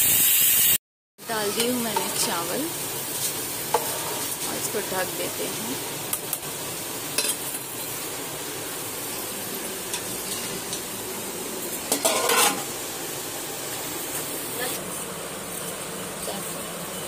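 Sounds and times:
pot boiling hiss: 0.0s - 17.0s
metal lid clattering on pot: 11.9s - 12.7s.

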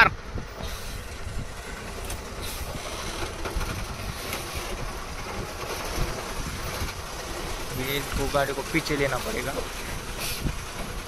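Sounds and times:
diesel engine rumbling: 0.0s - 11.0s.

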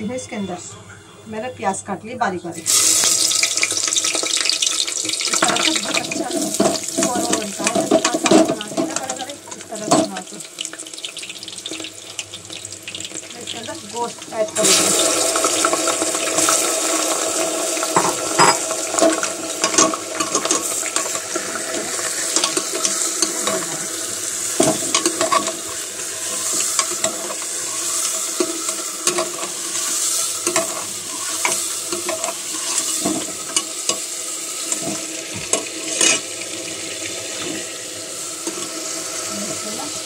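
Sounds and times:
meat sizzling in hot oil: 2.6s - 40.0s
metal ladle scraping a pot: 24.5s - 34.0s, 34.7s - 36.3s.

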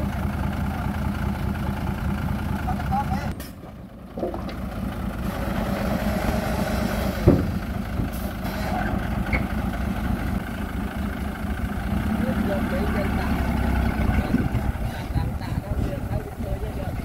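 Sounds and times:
diesel truck engine idling: 0.0s - 17.0s
tipper bed clunk: 7.2s - 8.6s.

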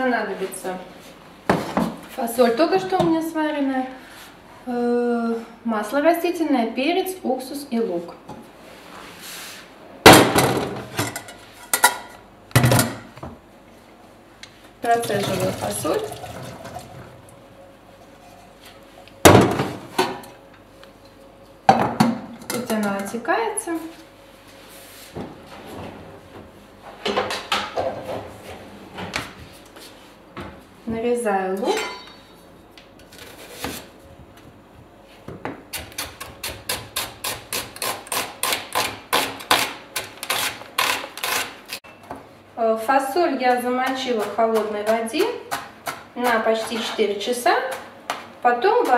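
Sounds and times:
water draining in sink: 14.9s - 17.3s.

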